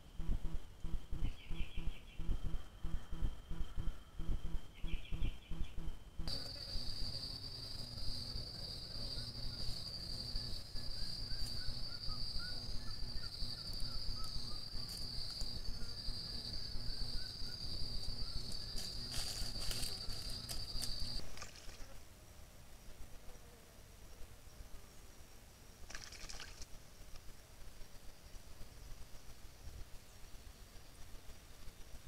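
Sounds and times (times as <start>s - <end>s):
insect buzzing: 0.0s - 22.1s, 22.8s - 32.0s
low hiss: 0.0s - 32.0s.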